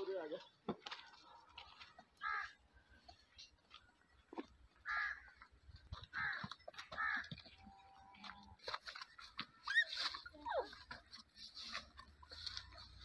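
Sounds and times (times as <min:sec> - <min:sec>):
crow cawing: 0:02.2 - 0:02.6, 0:04.8 - 0:05.4, 0:06.1 - 0:07.4.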